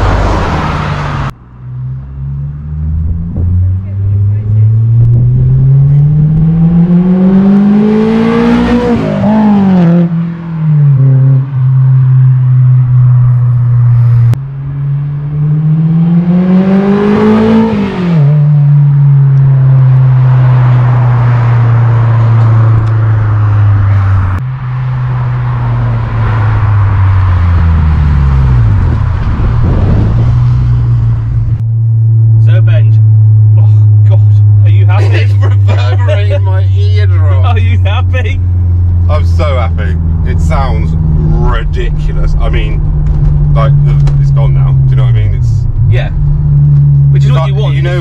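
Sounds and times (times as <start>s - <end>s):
low engine drone: 21.8s - 48.0s.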